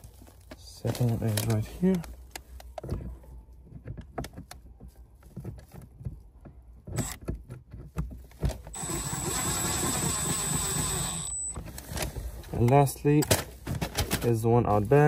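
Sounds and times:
clicks of bolt and plastic cover: 0.4 - 3.1, 11.5 - 14.4
power driver whining: 6.9 - 7.2, 8.7 - 11.7.

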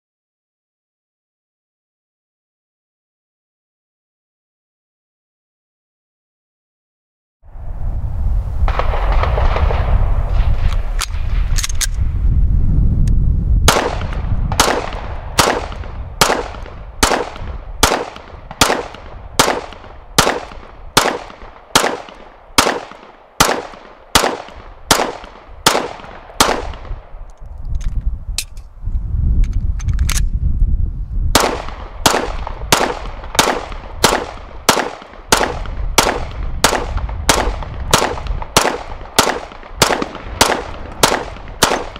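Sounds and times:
low rumble: 7.5 - 21.5
pistol shots: 13.7 - 27.2, 31.3 - 41.9.

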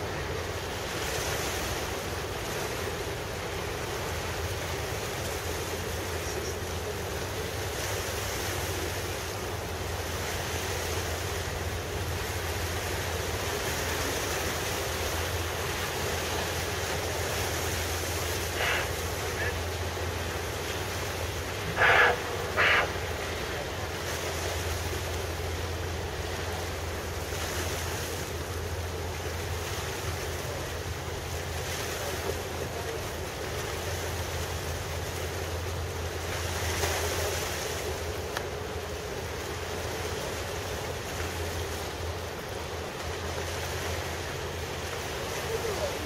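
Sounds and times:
low boat engine drone: 0.0 - 46.0
water wash: 0.0 - 46.0.

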